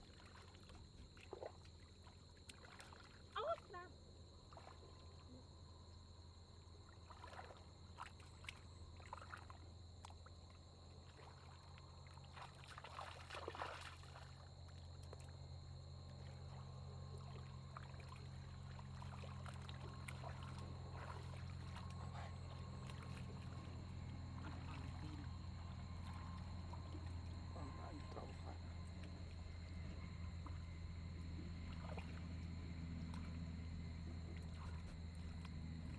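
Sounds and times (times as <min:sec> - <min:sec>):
hands sloshing in muddy water: 0:00.0 - 0:03.7, 0:04.3 - 0:05.6, 0:06.5 - 0:35.9
low hum: 0:14.2 - 0:35.9.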